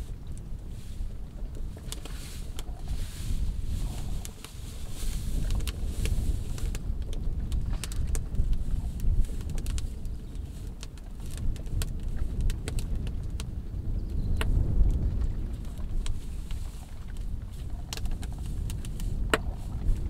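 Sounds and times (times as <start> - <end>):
low rumble: 0.0 - 10.6
grass and straw fire crackling: 0.0 - 20.0.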